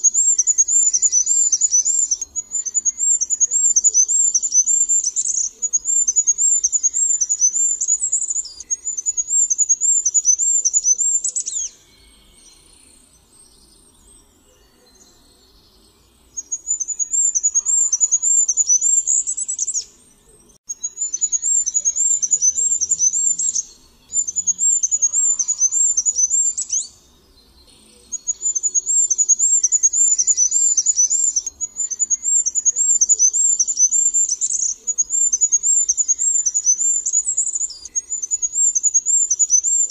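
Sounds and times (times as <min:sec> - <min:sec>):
small bird singing high notes: 0:00.0 - 0:13.0, 0:16.4 - 0:20.0, 0:20.6 - 0:27.1, 0:27.9 - 0:39.9.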